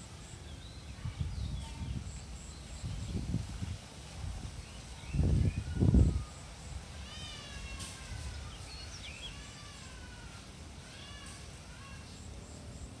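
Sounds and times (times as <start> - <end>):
animal calls and chirps: 4.7 - 12.6.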